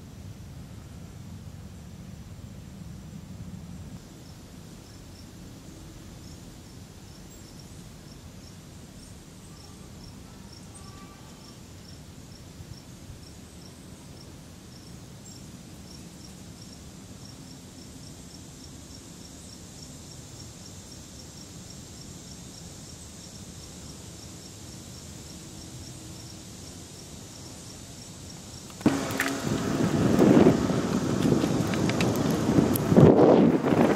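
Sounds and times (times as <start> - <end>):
insects chirping: 3.8 - 33.9
high-pitched insect drone: 6.0 - 12.9
low outdoor rumble: 28.6 - 33.9.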